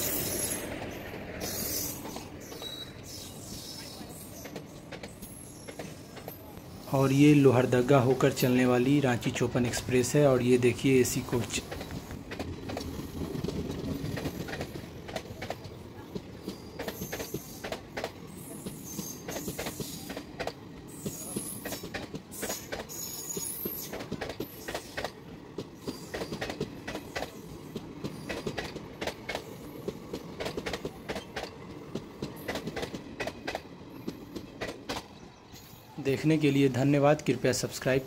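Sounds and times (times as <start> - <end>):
train coaches rumbling past: 0.0 - 38.0
high-pitched wheel squeals: 1.4 - 4.5
wheel clicks over rail joints: 11.4 - 35.2.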